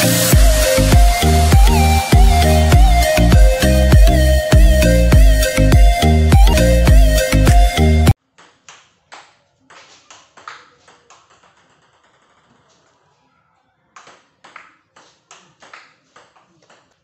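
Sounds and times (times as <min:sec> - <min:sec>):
ping pong ball clicking off bats: 0:10.4 - 0:13.0.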